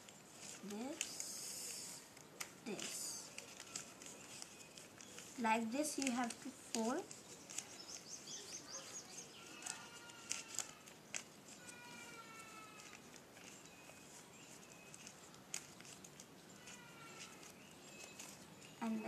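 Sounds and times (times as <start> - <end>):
paper rustling and folding: 0.0 - 19.0
faint high chirps: 11.7 - 15.3.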